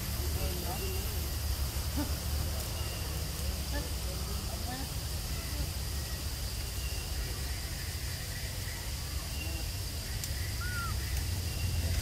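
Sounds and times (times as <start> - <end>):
high insect drone: 0.0 - 12.0
faint short bird chirps: 10.6 - 11.8.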